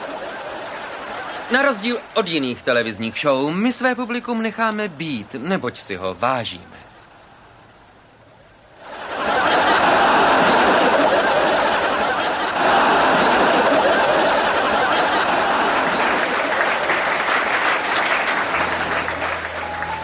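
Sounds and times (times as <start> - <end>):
studio audience laughing: 0.0 - 2.4, 8.8 - 20.0
audience applauding: 0.0 - 2.8, 8.9 - 20.0.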